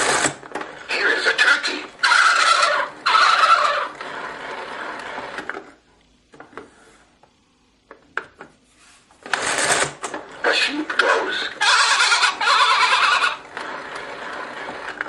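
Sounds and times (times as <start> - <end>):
recorded turkey gobble from toy speaker: 1.4 - 3.9, 11.0 - 13.4.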